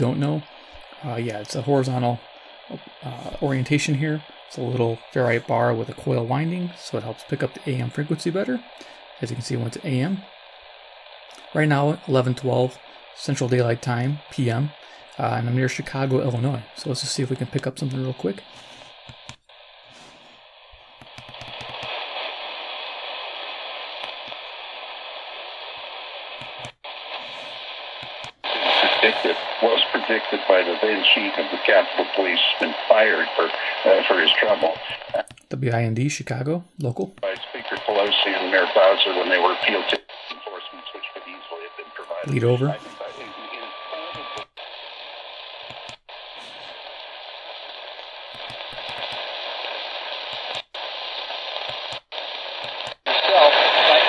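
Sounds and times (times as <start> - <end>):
radio static hiss: 0.0 - 54.0
voice speaking over radio: 1.0 - 10.2, 28.5 - 35.3, 37.1 - 44.4, 53.1 - 54.0.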